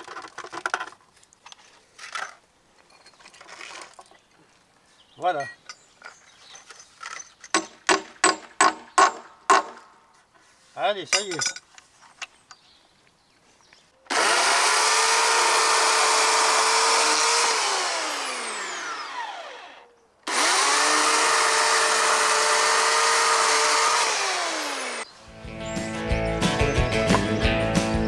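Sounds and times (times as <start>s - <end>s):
chainsaw revving: 14.1s - 25.1s
guitar music: 25.2s - 28.0s.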